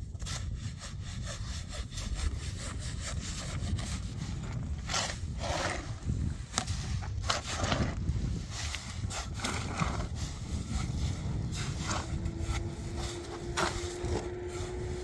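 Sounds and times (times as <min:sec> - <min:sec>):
shovels scraping wet concrete: 0:06.6 - 0:15.0.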